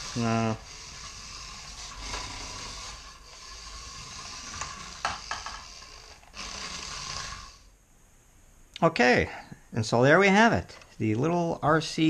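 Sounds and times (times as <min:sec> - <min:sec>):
toy car motor and gears whirring: 0:00.0 - 0:07.7.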